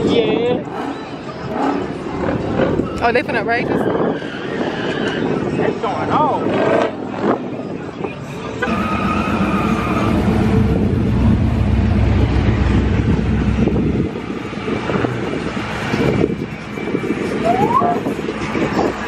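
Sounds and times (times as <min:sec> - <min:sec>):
car engine rumbling: 0:08.5 - 0:19.0
steady high tone: 0:10.1 - 0:18.2.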